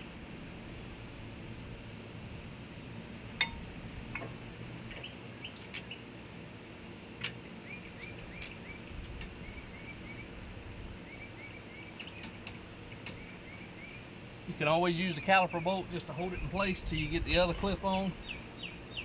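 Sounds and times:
small bird chirping: 11.0 - 12.4, 13.0 - 14.1.

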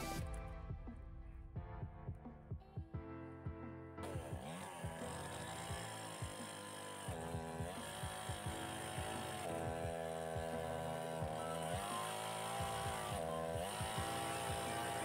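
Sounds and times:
chainsaw cutting log: 4.0 - 15.0.

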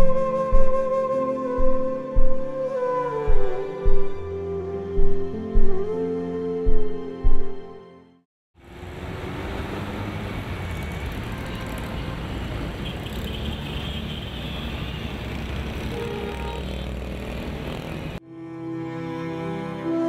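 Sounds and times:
cars driving past: 8.6 - 18.2.

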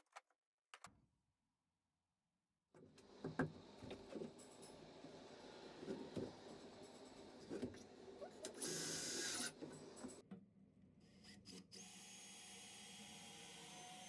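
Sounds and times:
drill driving screws into wood: 8.6 - 9.6.

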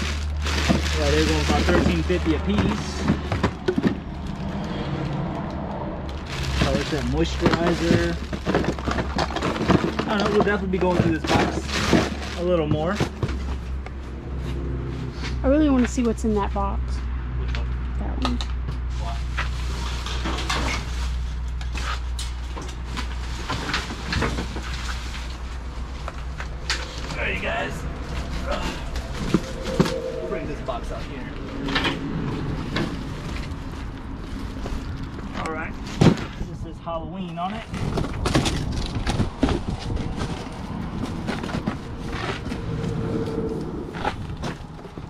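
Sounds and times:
boxes rustling and scraping: 0.0 - 4.7, 6.2 - 15.4, 18.9 - 36.4, 37.3 - 45.0
low hum: 25.2 - 34.1.

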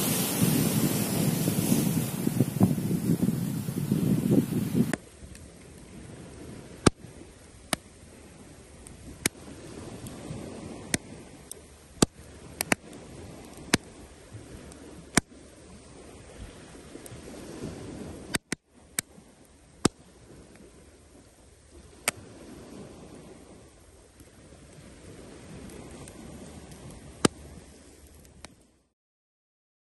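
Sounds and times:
faint steady rush: 0.0 - 5.0
campfire crackling and popping: 0.0 - 28.7
wind and surf: 0.0 - 28.9.

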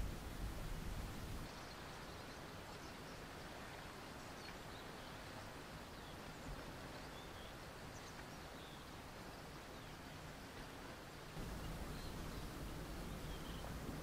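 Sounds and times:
faint open-air ambience: 0.0 - 14.0
faint bird chirps: 11.4 - 13.8.

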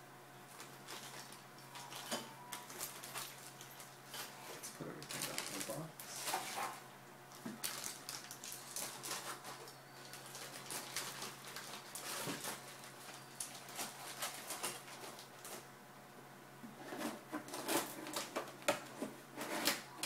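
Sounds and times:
plastic bags rustling and crinkling: 0.4 - 15.7.

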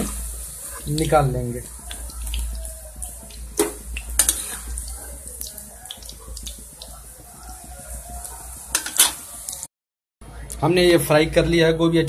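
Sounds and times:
vegetables sizzling in hot oil: 0.0 - 9.7
steel spatula scraping a pan: 4.2 - 4.8.

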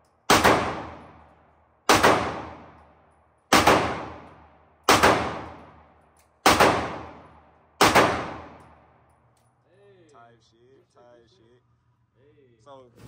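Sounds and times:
gunshots with echo: 0.3 - 1.2, 1.9 - 2.8, 3.5 - 5.8, 6.4 - 8.7.

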